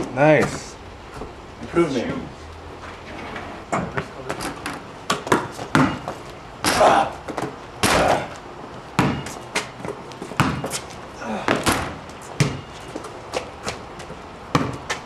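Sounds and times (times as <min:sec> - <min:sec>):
basketball bouncing on concrete: 0:03.8 - 0:10.8, 0:11.4 - 0:15.0
basketball banging off hoop: 0:05.2 - 0:08.3, 0:10.4 - 0:10.7, 0:11.4 - 0:12.6.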